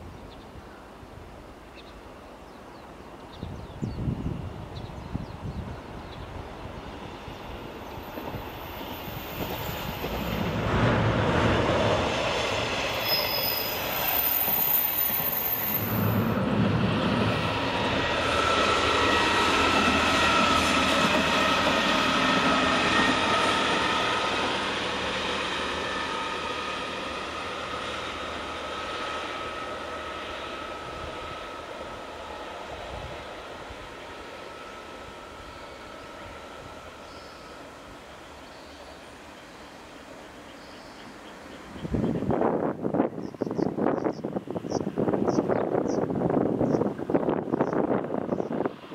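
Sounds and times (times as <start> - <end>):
railcar passing on rails: 0.0 - 48.9
wheel squeal: 13.0 - 16.0.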